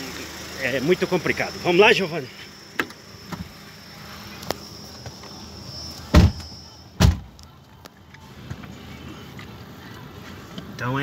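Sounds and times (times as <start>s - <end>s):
high insect buzz: 0.0s - 7.4s
truck doors slamming shut: 6.1s - 7.4s.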